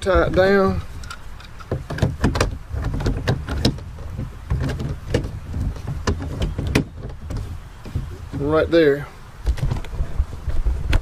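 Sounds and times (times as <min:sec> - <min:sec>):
hard plastic clicks and knocks: 0:01.0 - 0:08.5.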